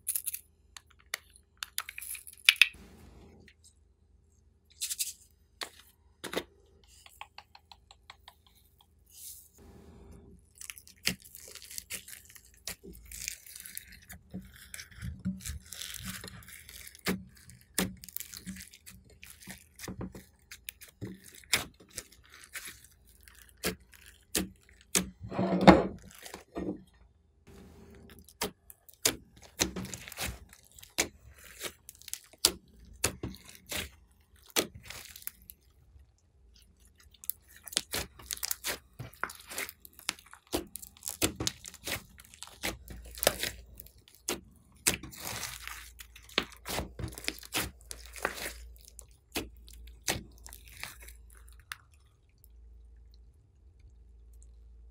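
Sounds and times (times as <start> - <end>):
foam beads clicking and popping: 0.0 - 2.8
slime squelching: 10.3 - 25.2, 27.6 - 54.9.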